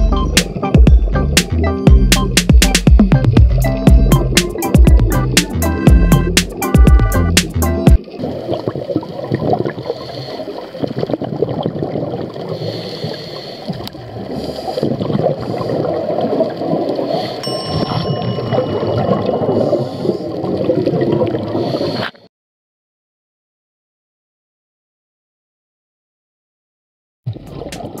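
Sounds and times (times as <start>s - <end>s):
underwater bubbles gurgling: 0.0s - 7.2s, 7.9s - 22.2s, 27.3s - 28.0s
faint high tone: 17.4s - 20.0s.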